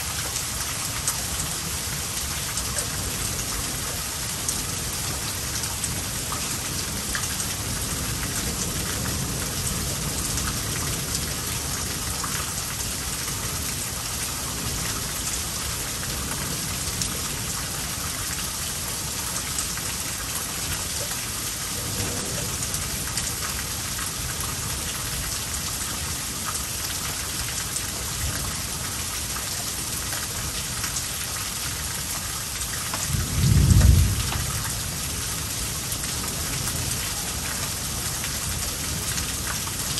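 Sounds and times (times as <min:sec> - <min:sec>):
heavy rain: 0:00.0 - 0:39.9
thunder rumble: 0:33.1 - 0:35.8.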